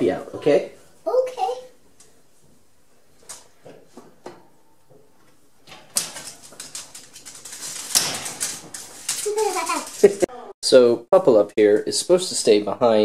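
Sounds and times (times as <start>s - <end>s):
wooden gears clicking and rattling: 5.9s - 10.2s.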